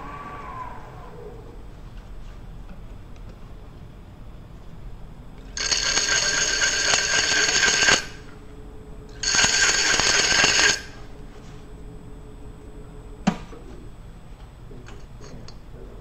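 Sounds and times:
tool scraping spinning metal bowl: 5.6 - 8.3, 9.1 - 11.1.

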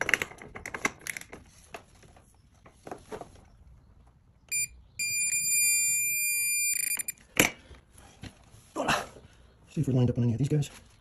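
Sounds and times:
torque wrench beeping: 4.5 - 7.2.

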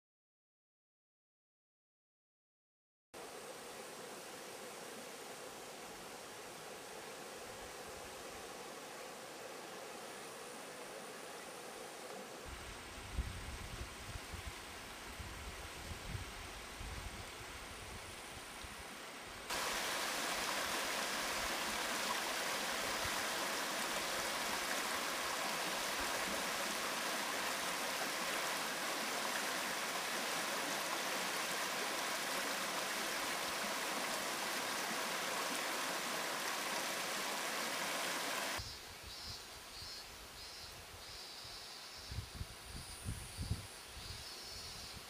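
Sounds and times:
stream running over stones: 19.5 - 38.6.

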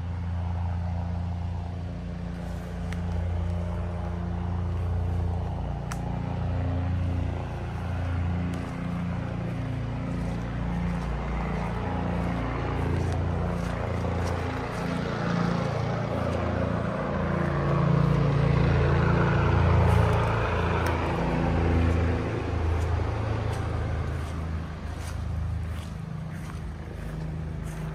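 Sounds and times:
engine humming: 0.0 - 27.9
rustling leaves and branches: 0.5 - 27.9.

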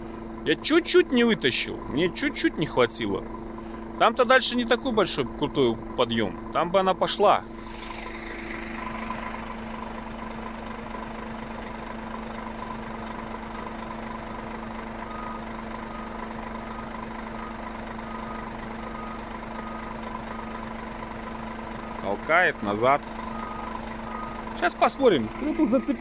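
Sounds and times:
diesel truck engine idling: 0.0 - 26.0
faint high beep: 15.1 - 16.1, 23.3 - 24.4.

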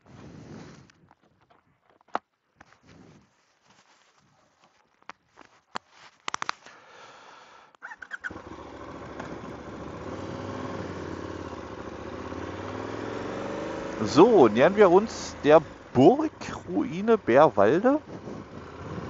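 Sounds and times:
motorcycle engine running: 8.2 - 19.0.

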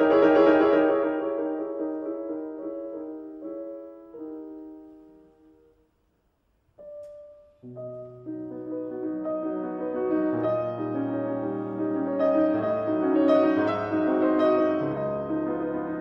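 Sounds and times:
piano chords: 0.0 - 5.8, 6.8 - 16.0.

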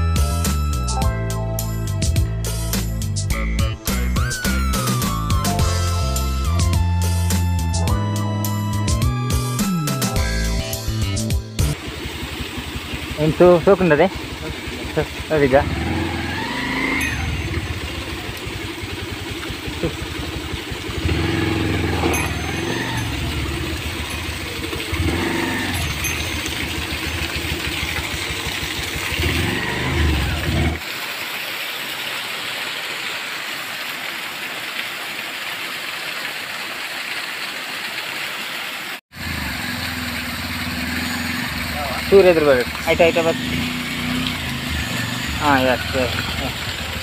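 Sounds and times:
motorcycle engine running: 9.7 - 30.8, 39.2 - 47.0
small waterfall splashing: 11.7 - 47.0.

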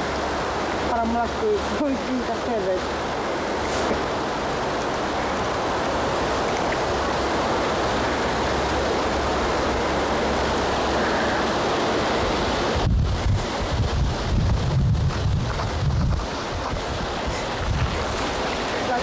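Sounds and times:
wind rushing: 11.9 - 18.8
wind buffeting microphone: 11.9 - 19.0.

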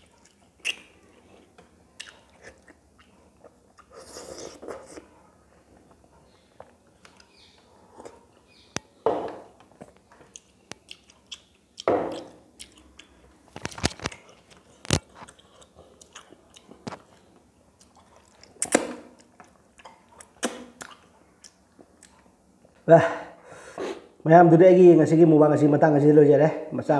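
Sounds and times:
lip smacks and chewing clicks: 10.3 - 13.2, 17.8 - 22.2.

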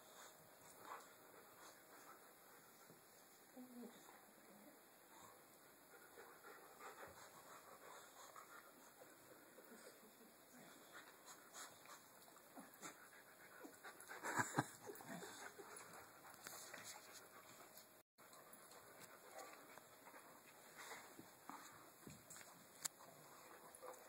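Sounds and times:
dog panting: 5.1 - 24.0.

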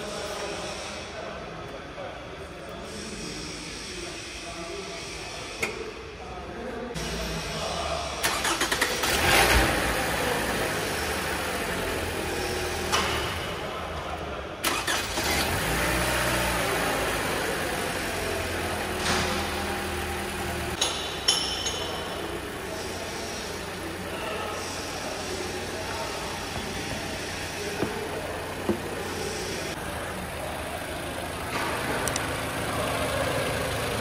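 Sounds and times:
car engine starting and idling: 7.0 - 34.0.

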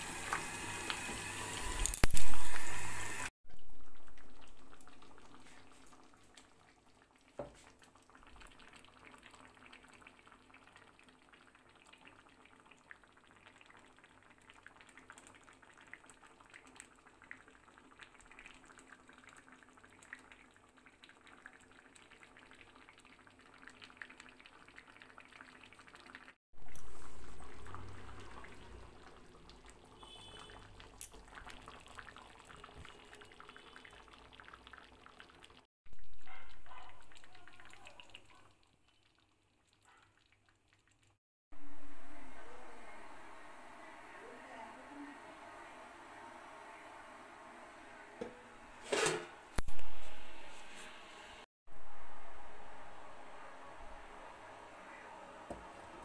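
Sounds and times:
water sizzling into hot pot: 0.0 - 36.2
curry simmering and bubbling: 3.5 - 42.3.

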